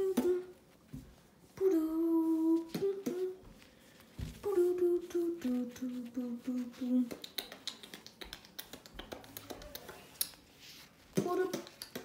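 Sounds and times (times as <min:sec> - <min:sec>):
hummed beatbox notes: 0:05.8 - 0:10.4
mouth clicks and pops: 0:07.1 - 0:10.4.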